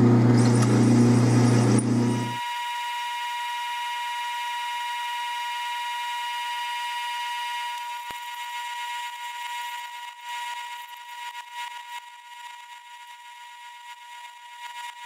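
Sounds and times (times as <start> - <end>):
lathe drilling whine: 0.0 - 15.0.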